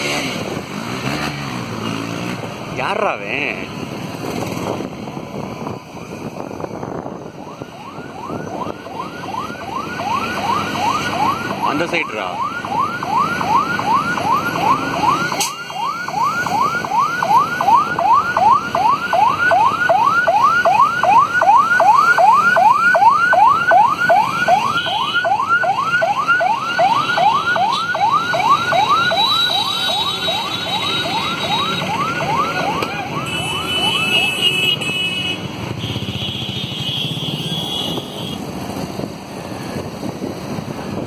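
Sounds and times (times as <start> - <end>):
siren yelping: 7.0 - 35.1.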